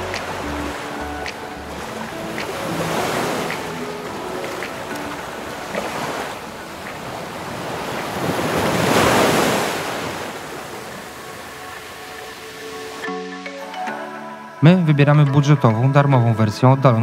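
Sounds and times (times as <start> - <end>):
wind buffeting microphone: 0.0 - 12.5
ocean surf washing ashore: 0.0 - 13.1.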